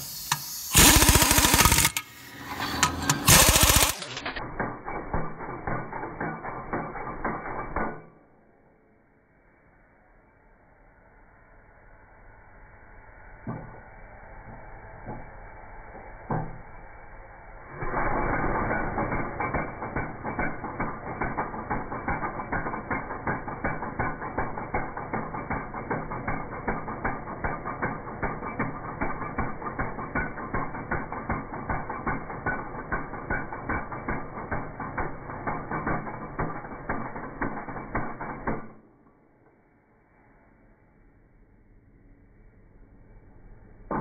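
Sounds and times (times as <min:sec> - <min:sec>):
impact wrench hammering: 0:00.0 - 0:08.1, 0:17.8 - 0:38.8.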